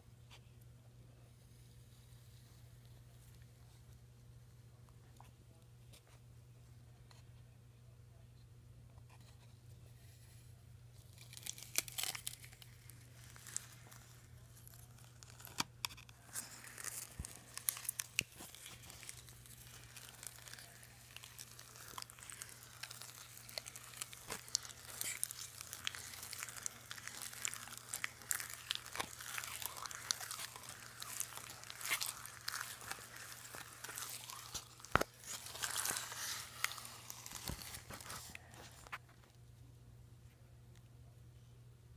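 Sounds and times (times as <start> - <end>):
stick stirring thick paint: 11.4 - 39.0.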